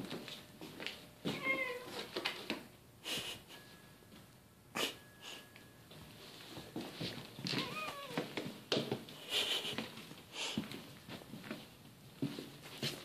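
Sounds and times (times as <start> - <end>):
cat meowing: 1.3 - 2.1, 7.5 - 8.3
scuffing and rustling: 6.0 - 9.1, 9.7 - 13.0.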